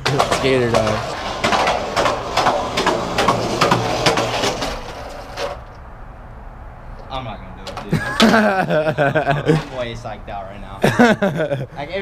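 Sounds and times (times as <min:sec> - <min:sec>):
skateboard wheels clacking on joints: 0:00.0 - 0:05.7, 0:07.6 - 0:08.5
skateboard wheels rumbling: 0:00.0 - 0:05.7.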